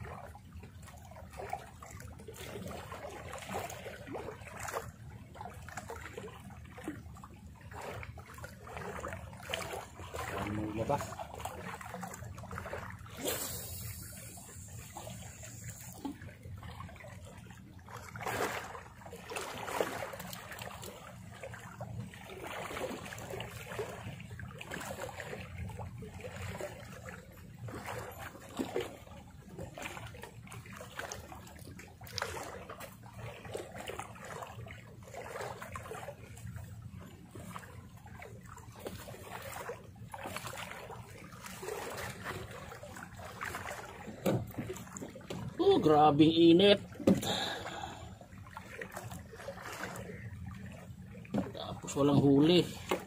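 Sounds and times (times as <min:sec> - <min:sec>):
sea water lapping: 0:00.0 - 0:53.0
low steady rumble: 0:04.8 - 0:22.2, 0:40.8 - 0:53.0.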